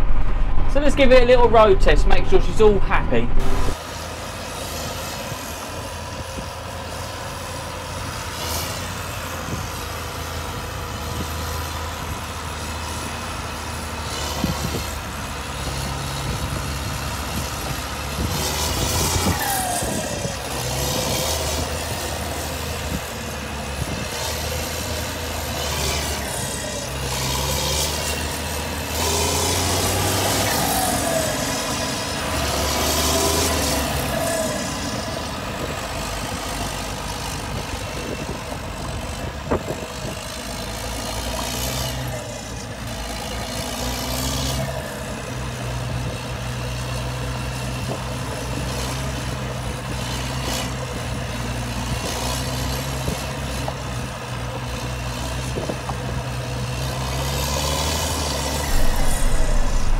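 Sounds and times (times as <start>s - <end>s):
turbo whine: 0.0s - 3.8s, 58.6s - 59.9s
tractor diesel engine running: 5.6s - 43.5s, 57.9s - 59.9s.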